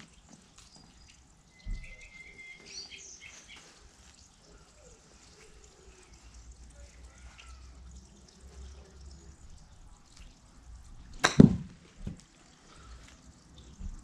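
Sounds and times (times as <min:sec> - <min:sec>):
golf club striking ball: 0:11.2 - 0:11.8
ball dropping thump: 0:11.2 - 0:12.2
ball thudding into tarp: 0:11.2 - 0:12.2.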